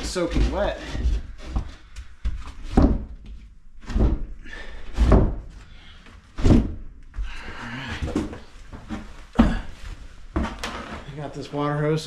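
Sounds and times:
heavy thuds on wooden floor: 1.0s - 5.6s, 6.3s - 7.4s, 8.0s - 11.1s.

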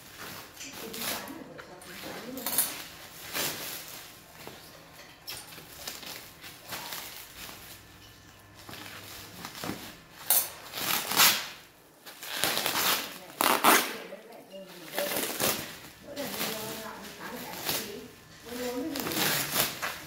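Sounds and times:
plastic wrap and tape crinkling: 0.0s - 20.0s.

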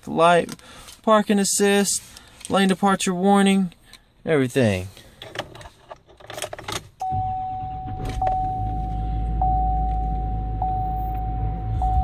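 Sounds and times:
diesel engine starting and idling: 7.0s - 12.0s
steady engine whine: 7.1s - 12.0s.

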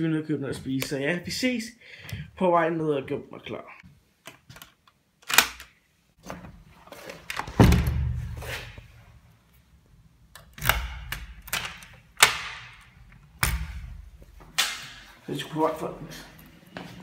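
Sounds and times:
door lock clicks: 4.6s - 5.7s, 10.4s - 13.9s
door thudding: 7.4s - 8.4s.

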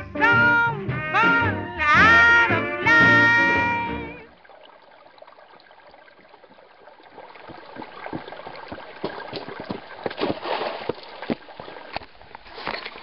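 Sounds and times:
stream running over rock: 4.2s - 13.0s
boots splashing through water: 6.0s - 13.0s.

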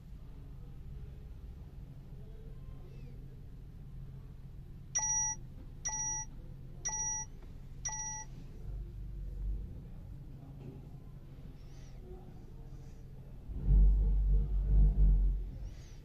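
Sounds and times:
short electronic beeps: 5.0s - 6.3s, 6.9s - 7.3s, 7.9s - 8.3s.

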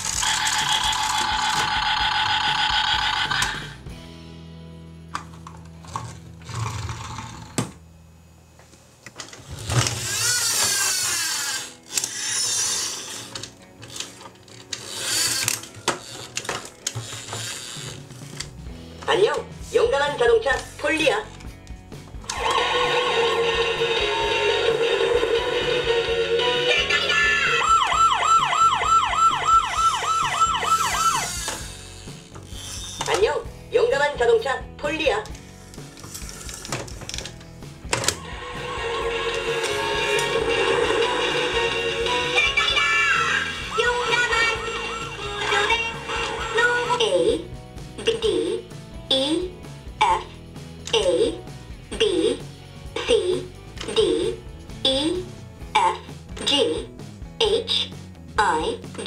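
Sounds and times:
toy low steady hum: 0.0s - 3.8s, 9.4s - 18.4s, 22.2s - 33.2s, 38.2s - 47.0s
toy police car electronic siren: 0.2s - 3.6s, 26.6s - 31.7s
toy siren warbling: 26.4s - 32.0s, 38.4s - 46.6s.

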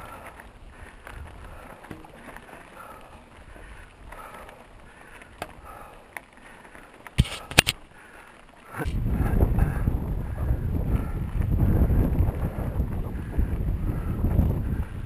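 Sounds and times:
bike tyres rustling on dirt: 0.0s - 15.0s
sharp clicks: 7.2s - 7.8s.

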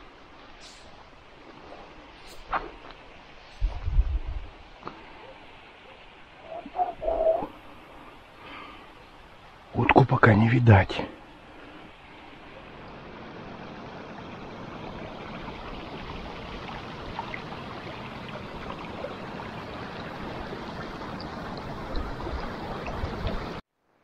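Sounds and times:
dry grass rustling against clothing: 0.0s - 5.2s.

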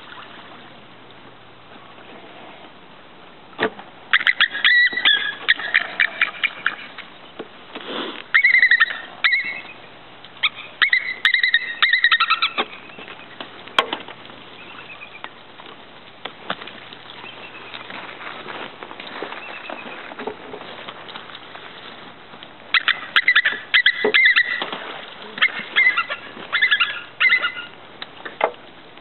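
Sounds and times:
eagles piping calls: 4.1s - 7.1s, 8.3s - 13.8s, 14.4s - 15.3s, 19.2s - 20.2s, 22.7s - 27.8s.

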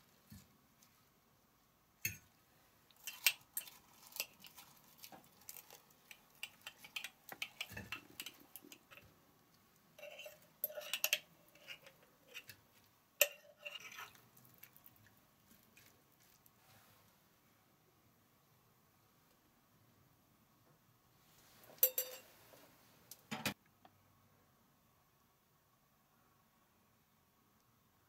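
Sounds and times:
salad leaves rustling: 3.0s - 7.0s
metal fork scraping on glass: 6.4s - 9.0s, 10.0s - 12.6s, 13.2s - 14.2s.

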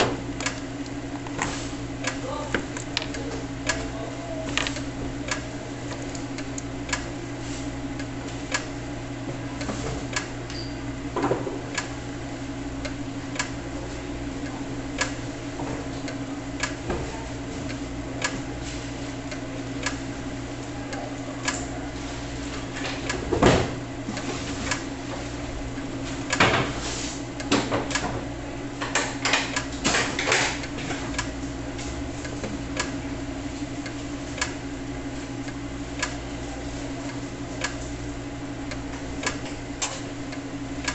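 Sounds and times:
slicer carriage ticking: 19.2s - 20.2s, 30.6s - 36.3s, 37.1s - 40.9s.

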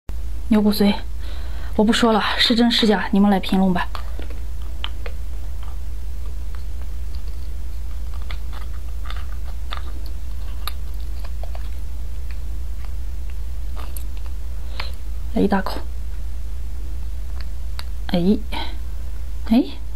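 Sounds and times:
steady low hum: 0.1s - 19.9s
metal utensil scraping bone: 7.1s - 11.8s.

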